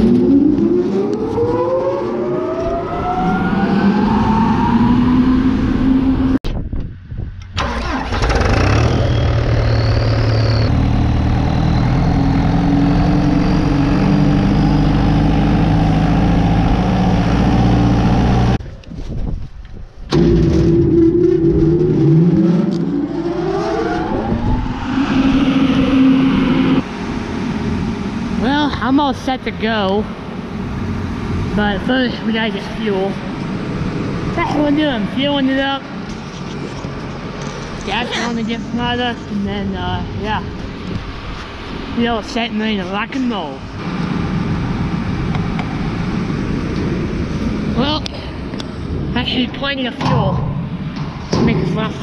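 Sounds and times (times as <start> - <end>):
engine running steadily: 24.4 - 52.0.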